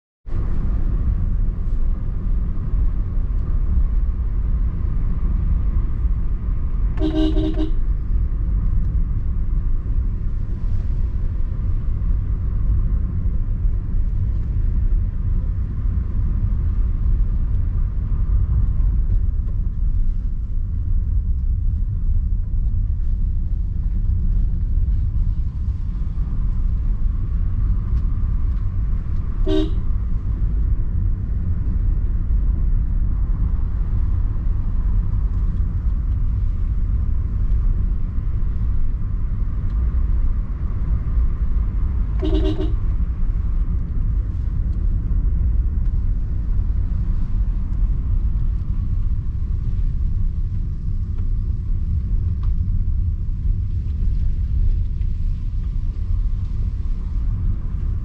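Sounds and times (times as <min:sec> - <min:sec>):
car road and engine rumble: 0:00.2 - 0:58.0
car horn: 0:07.0 - 0:07.9, 0:29.4 - 0:29.9, 0:42.2 - 0:42.9.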